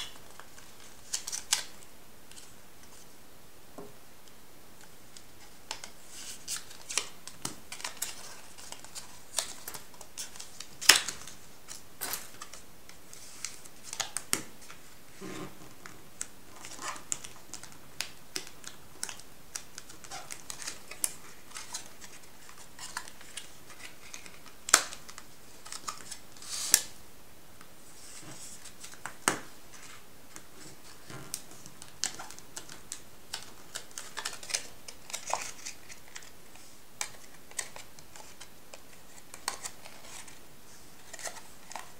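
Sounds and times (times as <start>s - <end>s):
stiff paper being folded: 29.7s - 40.4s.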